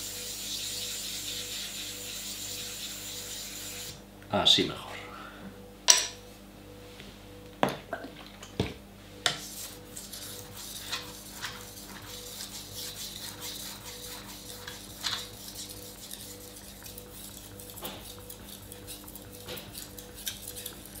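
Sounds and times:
knife scraping on whetstone: 0.0s - 3.9s, 9.3s - 21.0s.

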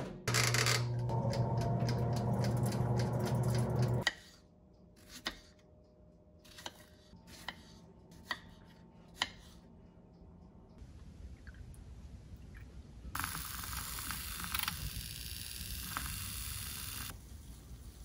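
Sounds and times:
oven humming: 0.0s - 4.0s.

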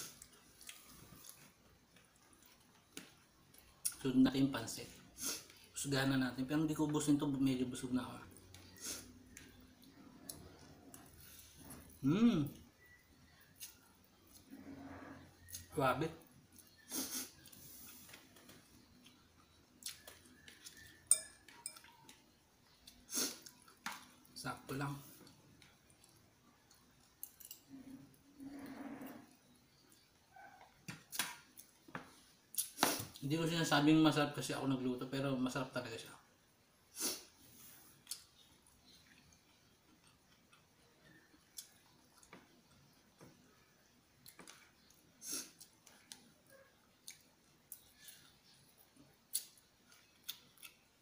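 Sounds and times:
faint chewing: 0.0s - 4.0s, 8.3s - 33.2s, 37.0s - 51.0s
fork clinking against bowl: 21.1s - 22.0s.

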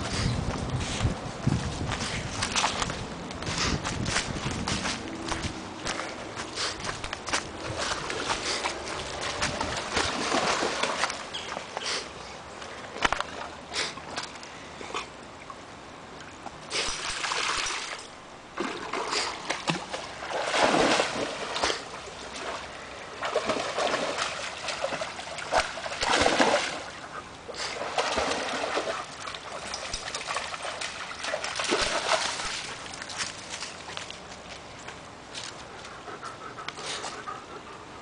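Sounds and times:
stream trickling: 2.3s - 37.9s
dog splashing through water: 7.4s - 11.7s, 16.7s - 18.0s, 18.6s - 34.2s.

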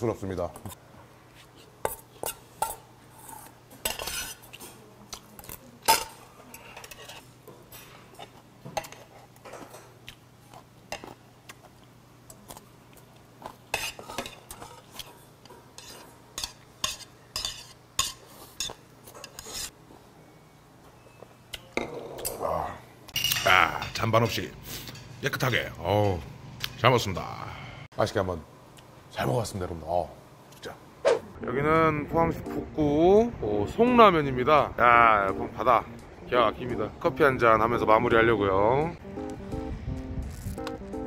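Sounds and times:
metal spoon scraping steel bowl: 3.2s - 4.6s, 15.8s - 19.7s.

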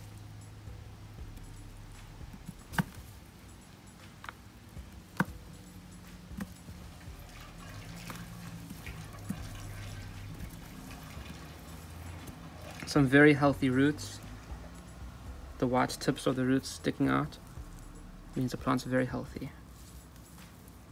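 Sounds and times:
hands crumbling soil: 6.2s - 14.8s
soil trickling into plastic tub: 6.2s - 20.9s.

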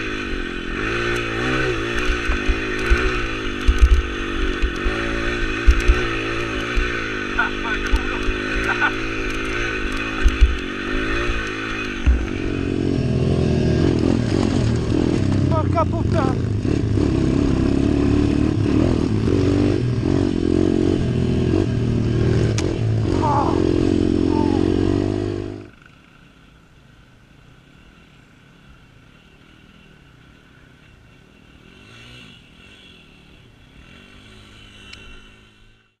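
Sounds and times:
motorcycle engine revving: 0.0s - 26.7s, 27.5s - 36.0s
distant motorcycle engine: 0.0s - 36.0s.

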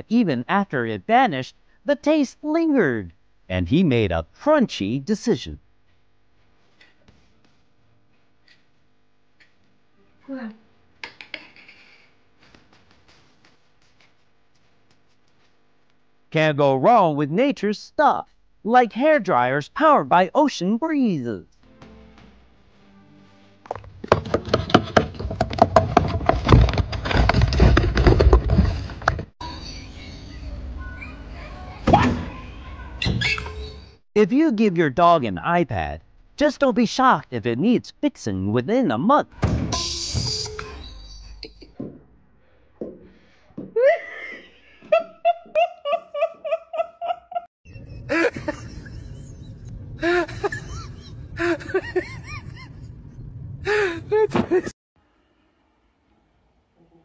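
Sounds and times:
people laughing: 43.8s - 52.9s
low outdoor rumble: 47.7s - 54.4s.

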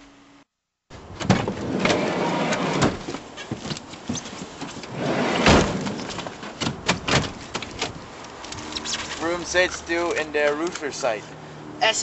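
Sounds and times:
sliding van door thud: 1.2s - 3.7s, 4.9s - 8.0s
rustling and knocks: 2.7s - 9.3s.

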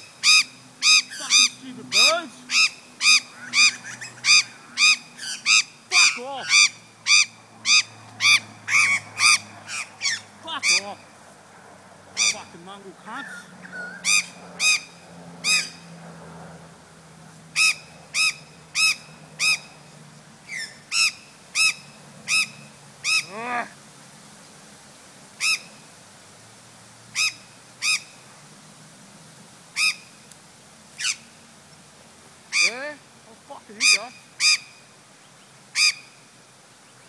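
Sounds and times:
magpie call dropping in pitch: 0.2s - 11.0s, 12.2s - 12.5s, 20.5s - 23.4s, 25.4s - 25.7s, 27.2s - 28.1s
magpie squawks: 0.2s - 11.0s, 12.2s - 12.5s, 13.2s - 15.8s, 17.6s - 19.8s, 20.5s - 23.3s, 25.4s - 25.8s, 27.2s - 28.2s, 29.8s - 30.2s, 31.0s - 31.3s, 33.8s - 34.8s, 35.8s - 36.2s.

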